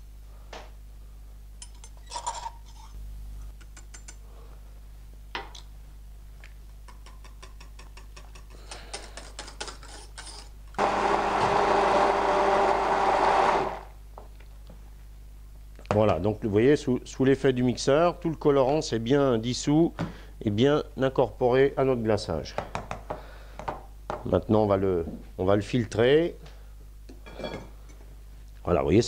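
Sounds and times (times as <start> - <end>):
hand blender running: 10.8 - 14.0.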